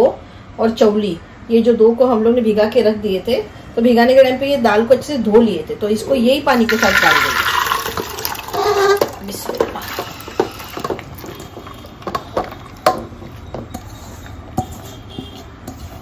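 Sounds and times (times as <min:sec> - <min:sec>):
wet grains sliding into pot: 0:06.7 - 0:09.2.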